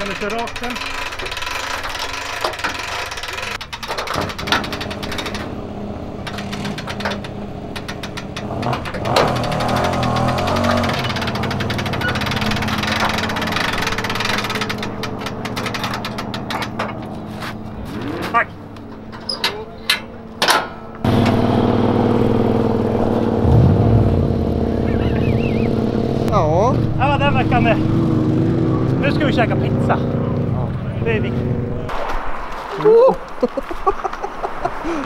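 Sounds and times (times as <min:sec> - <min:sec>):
hand winch ratcheting: 0:00.0 - 0:17.6
engine running steadily: 0:03.9 - 0:31.9.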